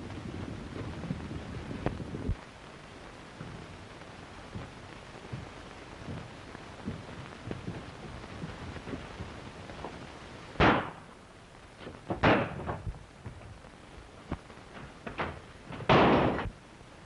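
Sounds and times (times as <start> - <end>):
soundtrack hiss: 0.0 - 17.0
sharp gunshots: 10.6 - 11.1, 12.2 - 12.6, 15.9 - 16.5.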